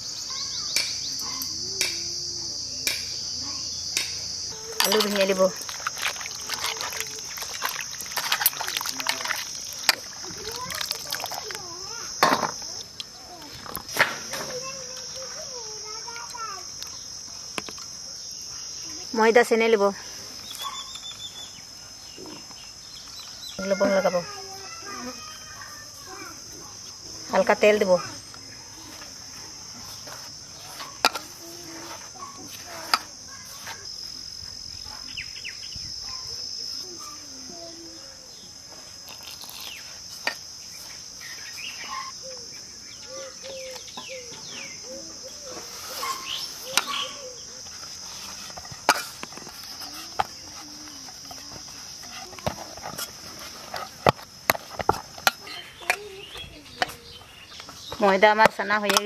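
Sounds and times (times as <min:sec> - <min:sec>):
high-pitched insect drone: 0:00.0 - 0:57.6
dough kneaded by hand in bowl: 0:04.8 - 0:11.8.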